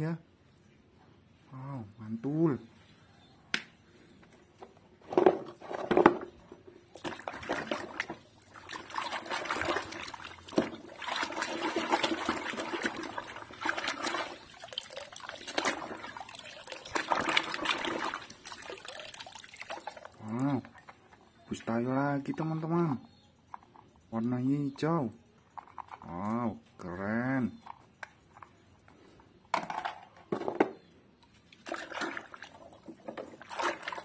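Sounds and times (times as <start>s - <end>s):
water splashing in a basin: 6.9s - 23.0s, 31.3s - 34.0s
water running off: 7.0s - 20.6s
toy cars clattering together: 25.4s - 26.7s, 29.5s - 30.8s.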